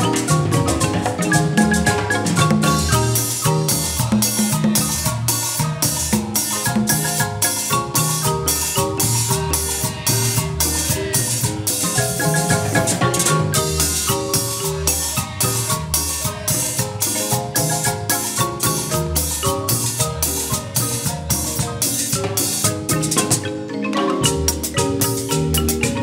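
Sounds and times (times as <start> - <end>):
drums beating: 0.0 - 26.0
marimba ensemble playing: 0.0 - 26.0.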